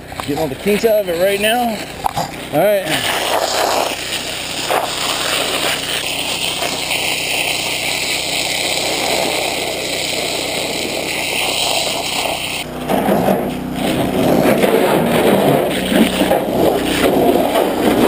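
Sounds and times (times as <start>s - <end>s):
fire hose water jet spraying: 0.0s - 18.0s
water jet hitting truck: 0.0s - 18.0s
water splashing on dirt: 0.0s - 18.0s.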